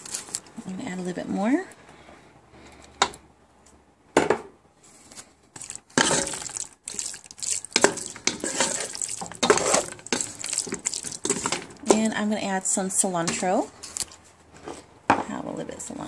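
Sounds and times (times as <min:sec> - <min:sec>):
wooden spoon stirring and scraping: 0:04.8 - 0:14.8.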